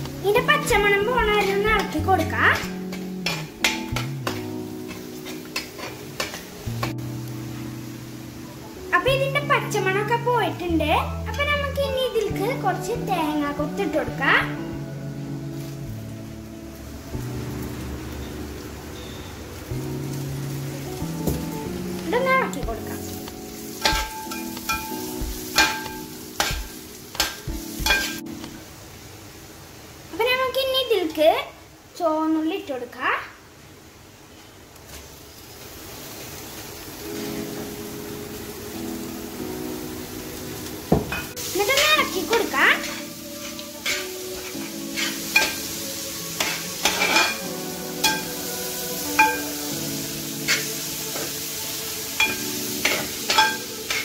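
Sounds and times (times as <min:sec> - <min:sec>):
oil sizzling: 0:00.0 - 0:32.8, 0:33.8 - 0:54.0
metal spatula clanking on pot: 0:01.3 - 0:06.9, 0:23.8 - 0:28.2, 0:45.0 - 0:45.6, 0:46.4 - 0:47.4, 0:52.2 - 0:54.0.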